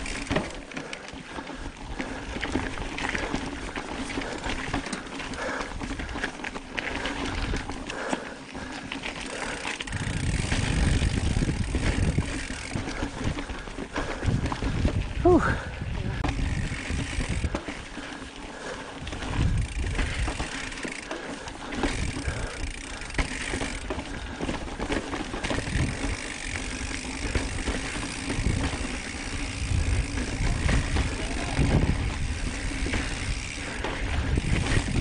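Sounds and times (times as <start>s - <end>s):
bike chain and frame rattling: 0.0s - 35.0s
bike tyres crunching: 0.0s - 35.0s
wind noise on microphone: 9.9s - 13.4s, 14.1s - 17.6s, 19.1s - 20.4s, 25.5s - 26.2s, 27.3s - 35.0s.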